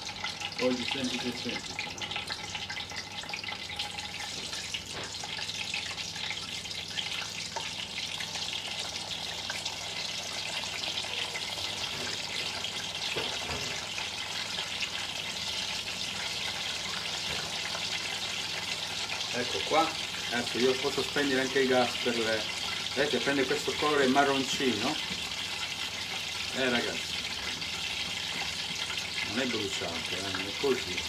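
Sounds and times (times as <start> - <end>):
slices sizzling in hot oil: 0.0 - 31.0.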